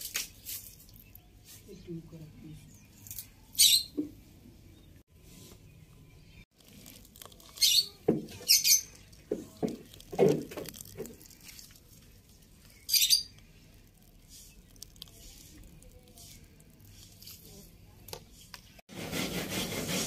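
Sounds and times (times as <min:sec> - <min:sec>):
wet squishing: 0:06.5 - 0:17.8.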